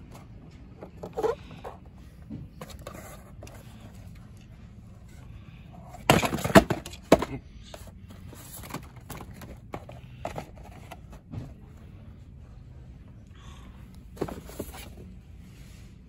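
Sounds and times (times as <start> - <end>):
cardboard box scraping and knocking: 14.2 - 15.1.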